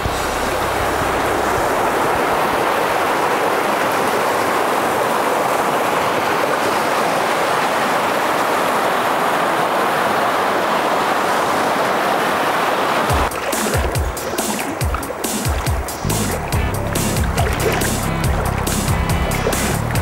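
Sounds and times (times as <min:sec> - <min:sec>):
creek water rushing over rocks: 0:00.0 - 0:20.0.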